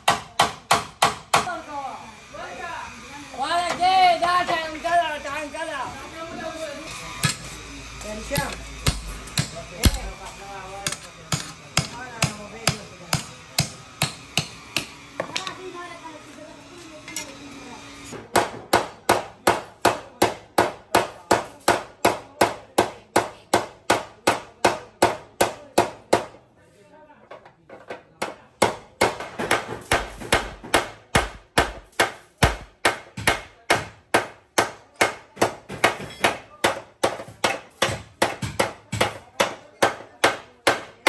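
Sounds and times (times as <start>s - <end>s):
hammer beating on steel: 0.0s - 1.5s, 8.4s - 10.2s, 10.8s - 15.0s, 28.2s - 41.0s.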